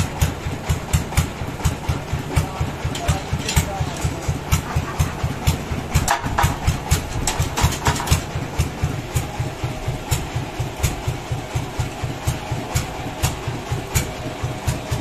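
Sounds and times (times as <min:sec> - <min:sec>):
sawmill engine thumping: 0:00.0 - 0:15.0
sharp knocks and clatter: 0:01.0 - 0:09.3.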